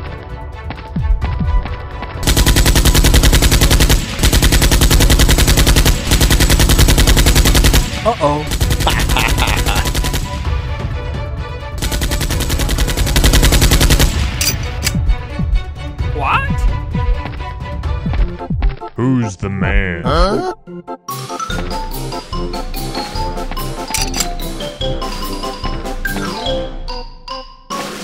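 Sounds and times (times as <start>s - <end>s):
machine-gun automatic fire: 2.2s - 10.4s, 11.8s - 14.9s.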